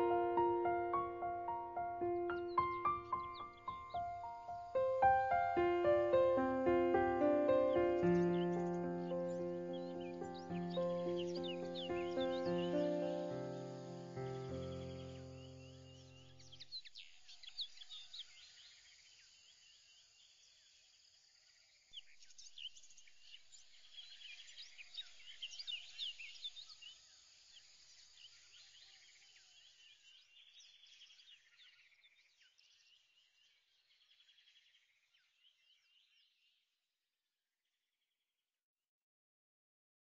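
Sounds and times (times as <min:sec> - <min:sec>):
birds chirping: 0:00.0 - 0:17.8.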